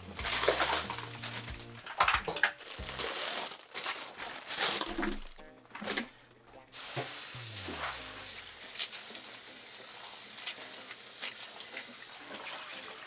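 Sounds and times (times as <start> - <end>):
leaves rustling by hand: 2.6 - 5.4.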